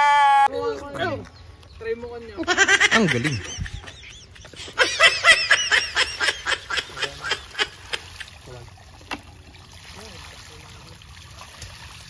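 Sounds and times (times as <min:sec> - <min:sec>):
person laughing: 0:02.4 - 0:08.3.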